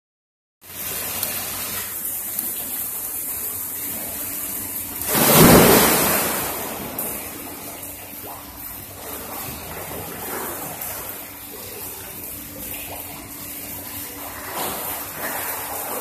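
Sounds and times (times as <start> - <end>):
water pouring into pool: 0.6 - 16.0
person splashing into pool: 5.1 - 7.4.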